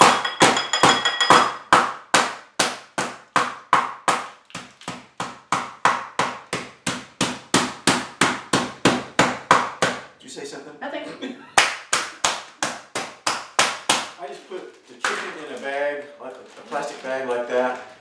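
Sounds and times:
meat mallet pounding chicken: 0:00.0 - 0:10.0.

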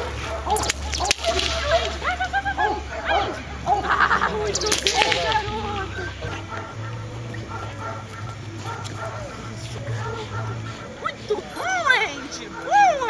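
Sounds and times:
whip cracks: 0:00.0 - 0:02.1, 0:04.5 - 0:05.6.

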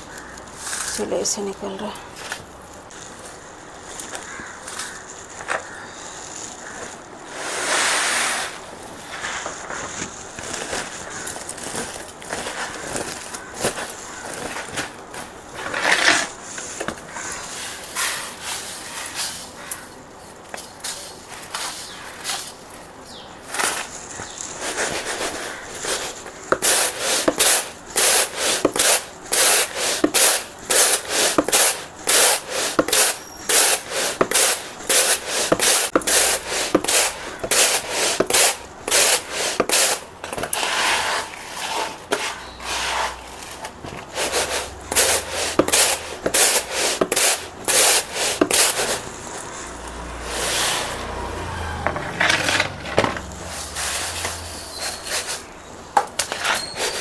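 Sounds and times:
rice swishing in plastic tray: 0:05.6 - 0:19.6, 0:23.5 - 0:51.2.

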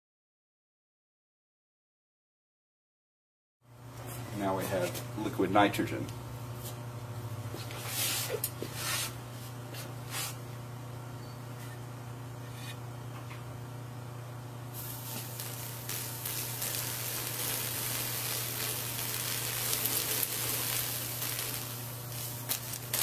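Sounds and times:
liquid nitrogen hissing on hot glass: 0:14.8 - 0:23.0.

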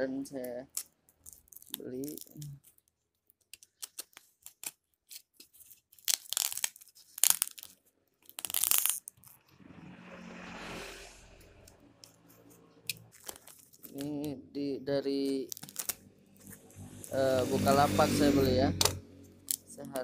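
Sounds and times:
plastic packaging crinkling: 0:00.7 - 0:09.4, 0:12.9 - 0:14.2, 0:15.2 - 0:16.5.

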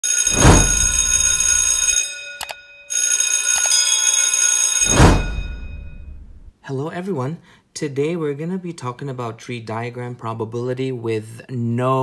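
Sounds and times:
high ringing tones: 0:00.0 - 0:06.5
whoosh: 0:00.3 - 0:01.2, 0:04.9 - 0:06.5.

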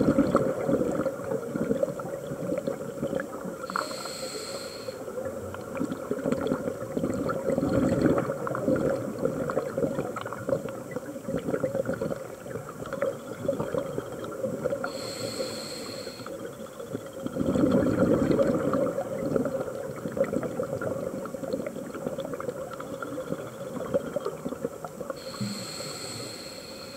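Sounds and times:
regulator hissing inhale: 0:03.7 - 0:05.1, 0:14.8 - 0:16.4, 0:25.2 - 0:26.9
bubbling exhalations: 0:05.8 - 0:10.7, 0:17.3 - 0:21.3.

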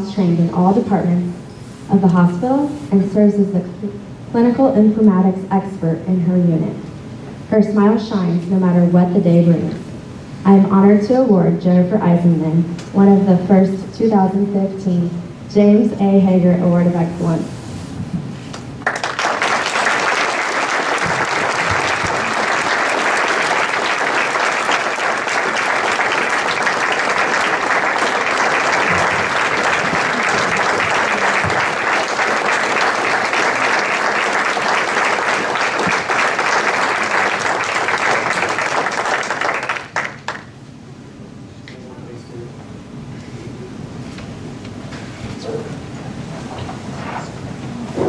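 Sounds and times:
audience applauding: 0:18.8 - 0:40.5.

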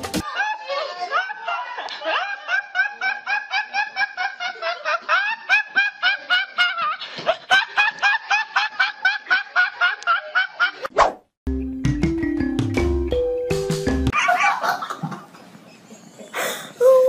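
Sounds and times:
high-pitched laughter: 0:14.2 - 0:15.3.

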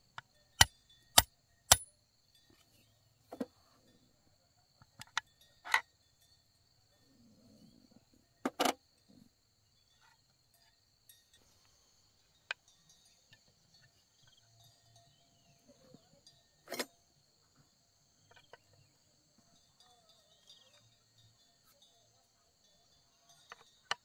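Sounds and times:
crickets trilling: 0:00.0 - 0:24.0.

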